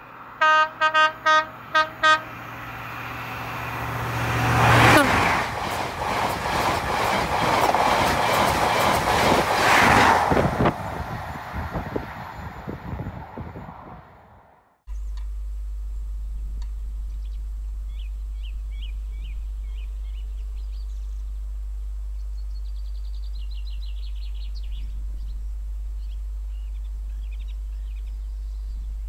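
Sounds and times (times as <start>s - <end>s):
low rumble: 8.0s - 29.0s
songbirds singing: 17.0s - 29.0s.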